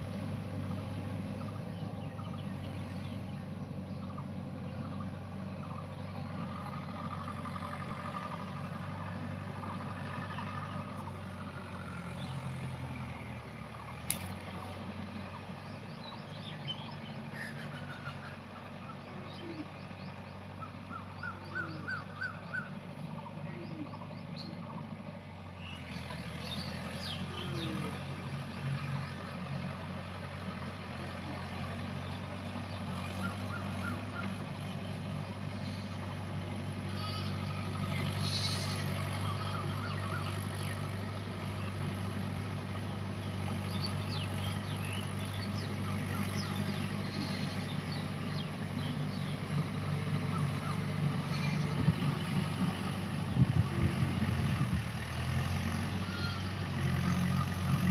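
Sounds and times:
distant tractor engine: 0.0s - 57.9s
small birds chirping: 14.0s - 53.6s.

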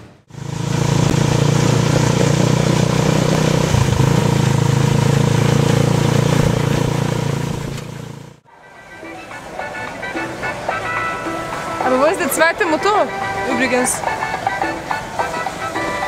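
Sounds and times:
small motorcycle engine running: 0.0s - 8.4s
vehicle jolt: 0.0s - 8.4s.

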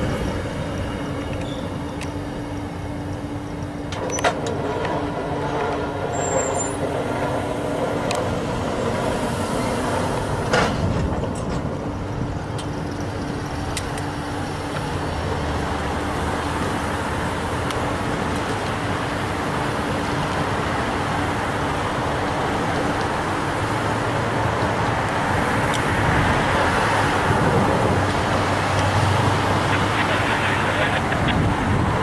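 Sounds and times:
train wheels on rail: 0.0s - 32.0s
sharp clicks and clank: 3.9s - 6.7s.

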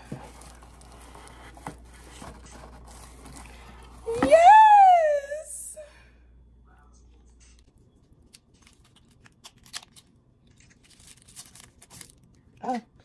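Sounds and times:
plastic packaging crinkling: 0.0s - 4.1s, 8.4s - 12.5s.

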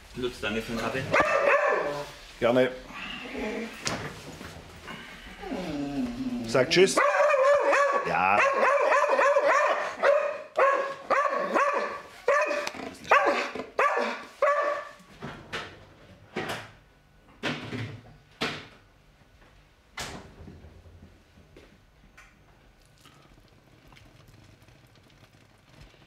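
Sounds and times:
dog barking in high yips: 1.1s - 2.0s, 7.0s - 15.0s.

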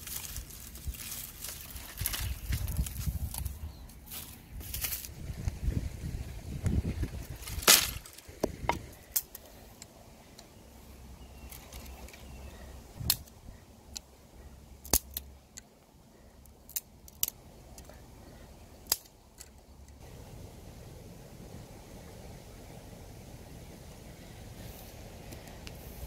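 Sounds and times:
dry twigs snapping: 0.0s - 5.6s, 6.7s - 10.5s, 13.0s - 14.1s, 14.8s - 15.7s, 16.5s - 18.0s, 18.8s - 19.6s
rustling in grass: 0.0s - 9.8s, 24.0s - 26.0s.

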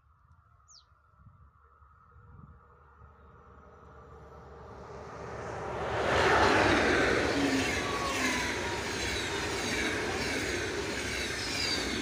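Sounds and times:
train passing at speed: 1.9s - 12.0s
train wheels rumbling on rails: 4.0s - 12.0s.

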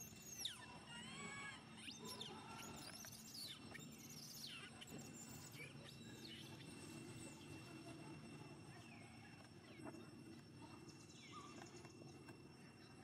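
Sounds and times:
faint high whine: 0.0s - 13.0s
high-pitched animal chirps: 0.2s - 6.6s.

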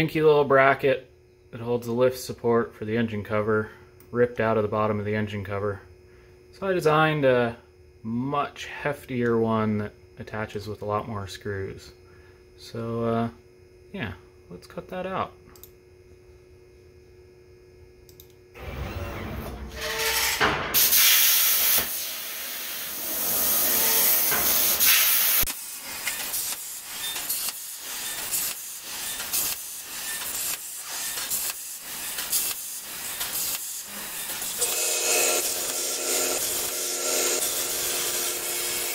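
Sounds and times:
faint electrical hum: 0.0s - 38.9s
plasma torch hissing cutting metal: 19.8s - 38.9s.

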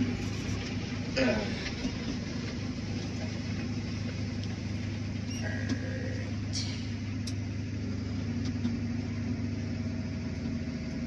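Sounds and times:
tractor engine drone: 0.0s - 11.0s
faint tone: 5.2s - 7.0s.

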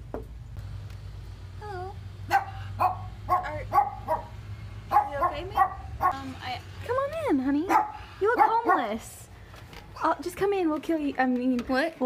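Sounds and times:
high-pitched dog barks: 2.3s - 6.2s, 7.7s - 9.0s.

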